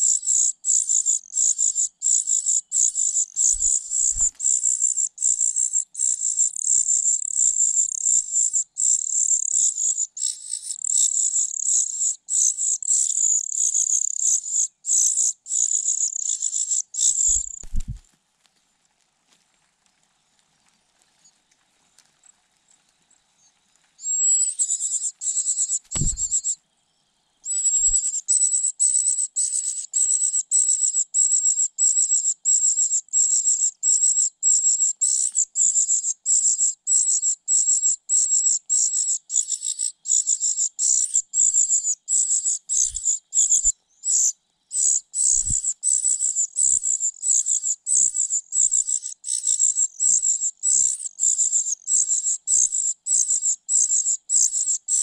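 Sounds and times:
nestlings begging calls: 0.1 - 6.8, 8.8 - 17.9, 24.0 - 26.6, 27.5 - 32.0, 38.8 - 55.0
soft low thumps: 25.9 - 26.4.

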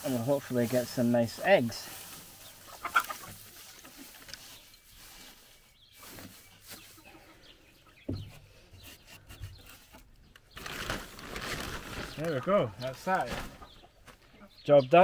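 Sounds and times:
straw rustling: 0.0 - 14.5
fowl calling: 2.6 - 4.1.

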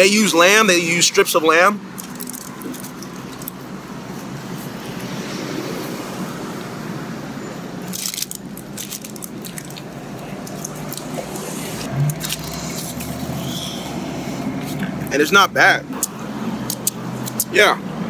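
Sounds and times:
biting and chewing food: 1.9 - 3.7, 7.8 - 15.1
crunching crackle: 2.0 - 3.6, 7.8 - 13.8.

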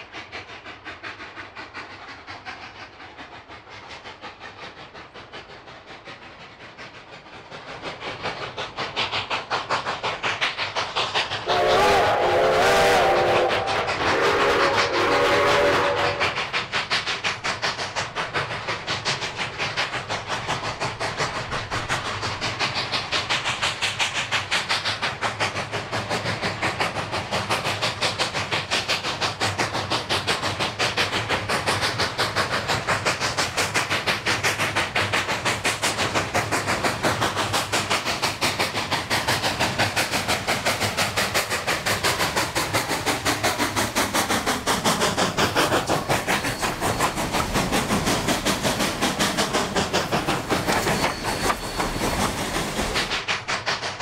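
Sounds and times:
steam locomotive exhaust chuffing: 0.0 - 54.0
steam whistle: 11.4 - 16.4.

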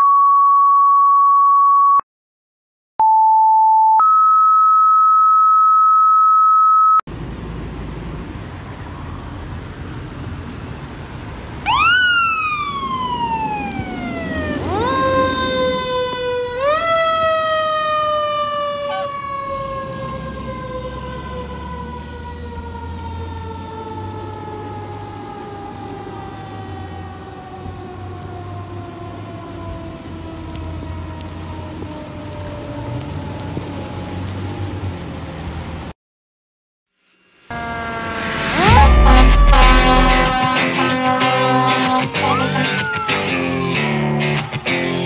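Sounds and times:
paging tone beeps: 3.0 - 7.0
street noise: 7.1 - 35.9, 37.2 - 45.0
fire engine siren wailing: 11.5 - 35.9, 37.4 - 44.4.

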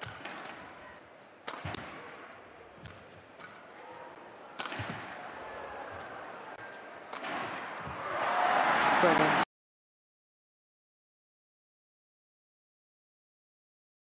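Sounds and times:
racket hitting shuttlecock: 0.0 - 3.9, 4.5 - 8.1
crowd murmur: 0.4 - 9.4.

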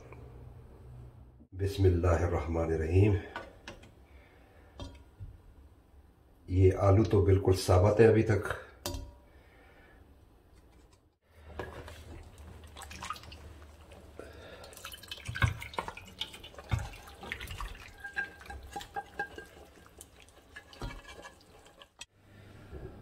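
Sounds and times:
food plopping wetly onto platter: 11.6 - 14.0, 14.6 - 22.0
pot and spoon clinking: 15.7 - 22.1.

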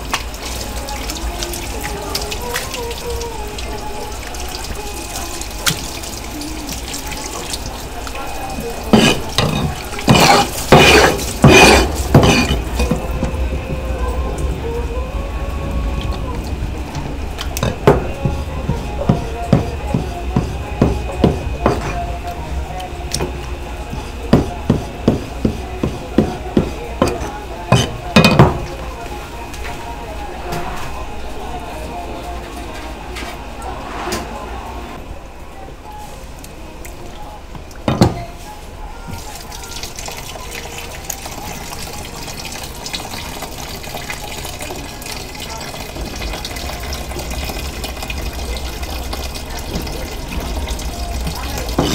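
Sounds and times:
tap water running and splashing: 0.0 - 14.5, 15.9 - 28.8, 39.1 - 51.9.

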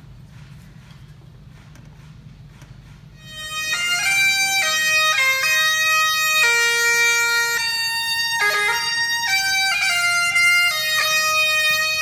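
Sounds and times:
bagpipes playing melody: 3.2 - 12.0.

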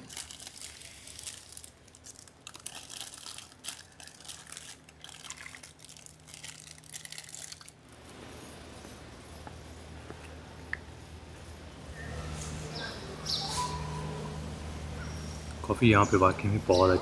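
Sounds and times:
low room hum: 0.0 - 17.0.

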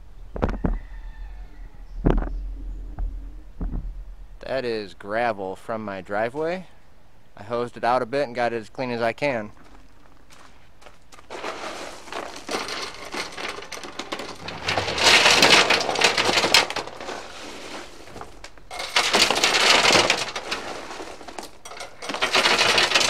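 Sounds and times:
gravel poured into steel tank: 11.1 - 23.0
stone scraping: 11.2 - 23.0.

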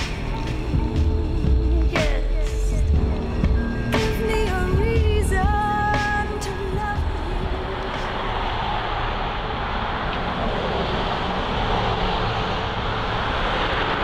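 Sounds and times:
road traffic noise: 0.0 - 14.0
car driving past: 7.4 - 14.0.

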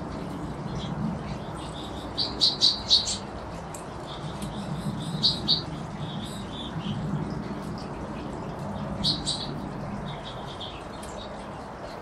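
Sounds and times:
finches chirping: 0.7 - 7.4, 8.8 - 11.6.

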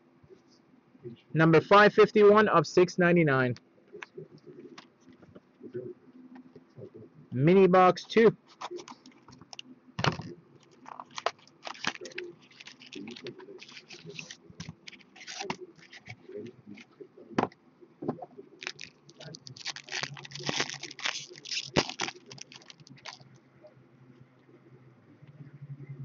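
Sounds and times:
card handling: 8.5 - 16.9, 18.6 - 23.3
wrapper crinkling: 10.6 - 16.2, 18.6 - 23.4.

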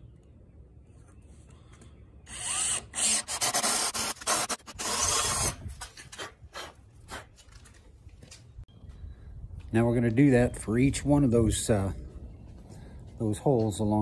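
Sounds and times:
power drill grinding into wood: 2.3 - 5.6.

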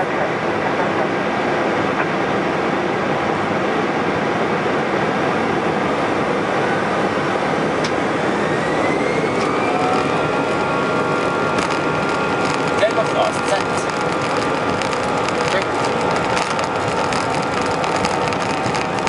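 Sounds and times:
jet engines roaring: 0.0 - 19.0
thin rising whine: 0.0 - 19.0.

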